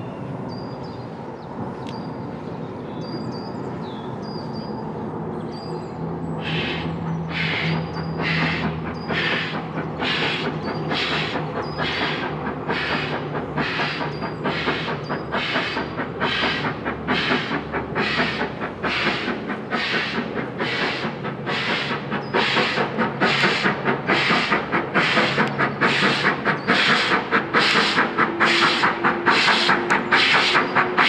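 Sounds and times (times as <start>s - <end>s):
steam locomotive exhaust chuffs: 6.4s - 31.0s.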